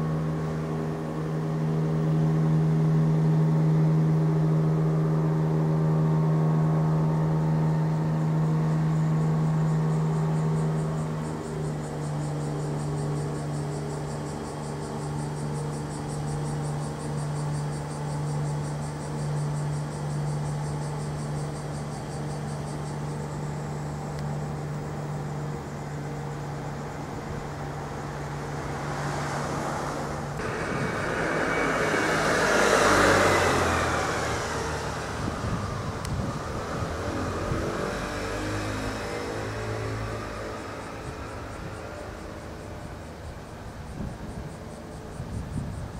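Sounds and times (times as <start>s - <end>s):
motor vehicle passing: 0.0s - 45.9s
steady low hum: 0.0s - 45.9s.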